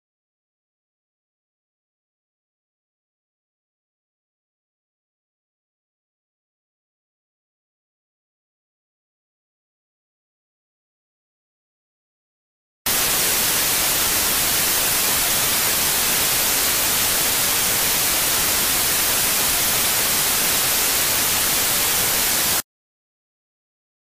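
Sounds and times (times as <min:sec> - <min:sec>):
television static hiss: 0:12.9 - 0:22.6.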